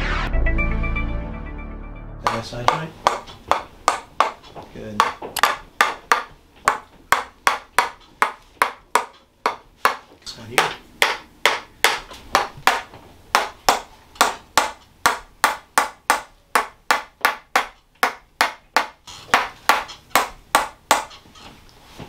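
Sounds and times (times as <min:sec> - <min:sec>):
mallet tapping a stick: 0:02.2 - 0:04.4.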